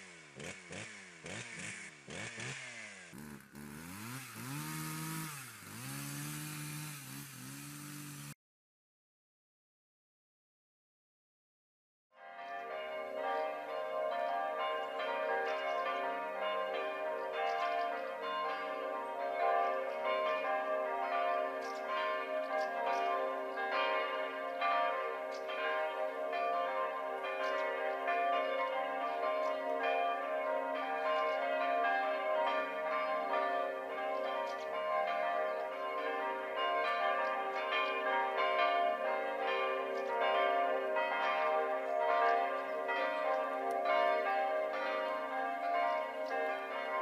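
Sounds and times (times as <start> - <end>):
church bells ringing: 3.8 - 6.0, 12.2 - 47.0.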